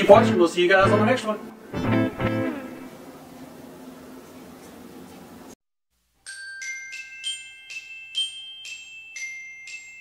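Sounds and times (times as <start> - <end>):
background guitar music: 0.0 - 3.0
bell-like jingle notes: 6.2 - 10.0.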